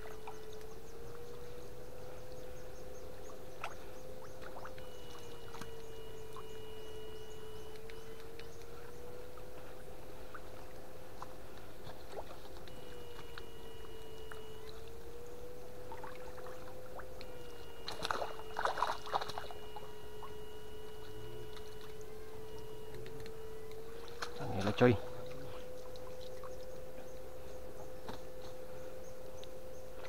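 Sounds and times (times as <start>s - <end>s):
electric fish shocker whining: 0.0s - 30.0s
water splashing: 3.3s - 26.9s
faint high tones: 17.1s - 30.0s.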